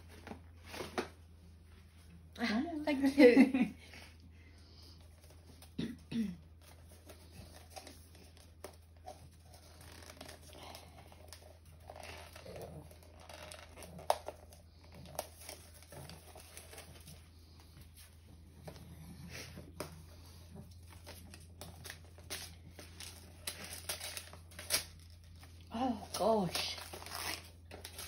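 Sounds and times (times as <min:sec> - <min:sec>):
gift wrapping rustling: 0:06.4 - 0:28.0.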